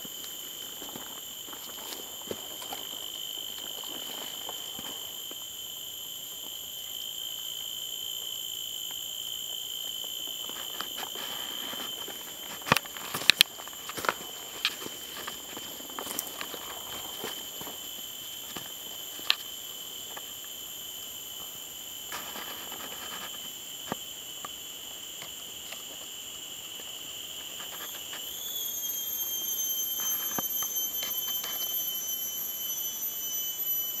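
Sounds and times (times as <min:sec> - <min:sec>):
insects shrilling: 0:00.0 - 0:25.4, 0:26.1 - 0:34.0
clicks and rustles of leaf litter: 0:10.4 - 0:17.8.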